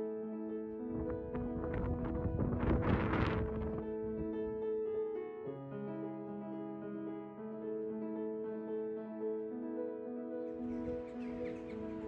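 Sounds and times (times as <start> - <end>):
soft piano music: 0.0 - 12.0
wind buffeting microphone: 0.8 - 4.7.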